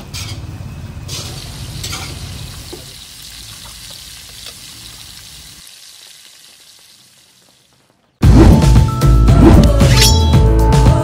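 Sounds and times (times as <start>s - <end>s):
rice sizzling in a pan: 1.0s - 8.2s.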